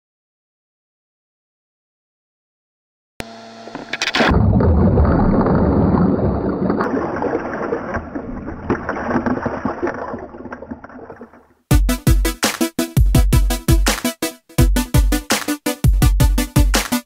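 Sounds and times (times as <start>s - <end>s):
muffled underwater surf rumble: 4.3s - 11.5s.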